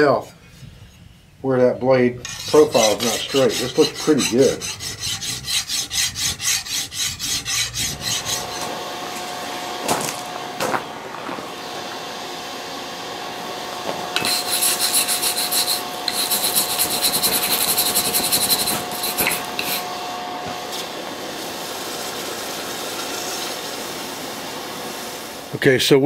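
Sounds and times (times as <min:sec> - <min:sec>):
metal scraping on metal: 0:02.2 - 0:08.8, 0:14.2 - 0:20.0.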